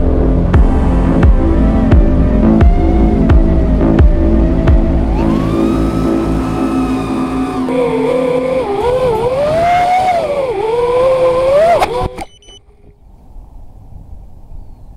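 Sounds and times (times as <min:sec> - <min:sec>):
quadcopter motors whining: 0:01.6 - 0:12.9.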